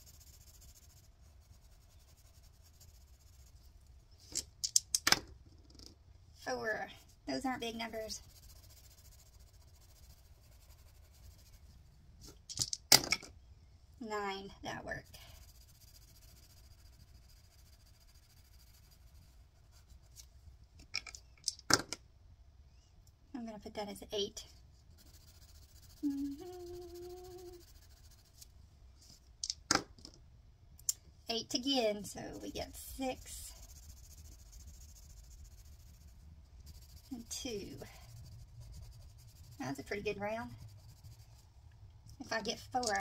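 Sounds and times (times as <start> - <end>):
pencil scratching on paper: 0.0 - 3.6, 6.9 - 11.7, 14.6 - 20.2, 24.0 - 28.5, 32.1 - 41.5, 42.3 - 43.0
dice clacking on table: 4.3 - 5.9, 12.5 - 13.3, 29.4 - 30.2.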